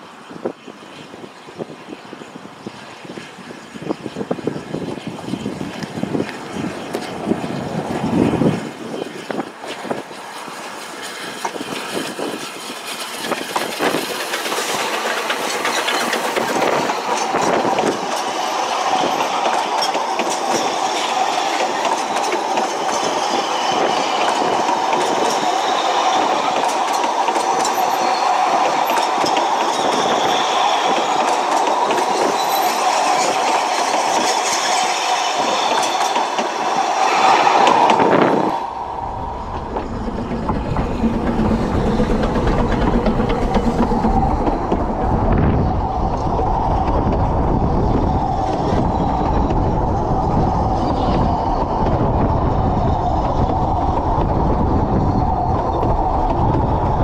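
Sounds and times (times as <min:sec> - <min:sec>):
train wheels rumbling on rail: 0:00.0 - 0:57.0
clicking over rail joints: 0:37.7 - 0:49.9
steady ringing note: 0:38.6 - 0:45.8.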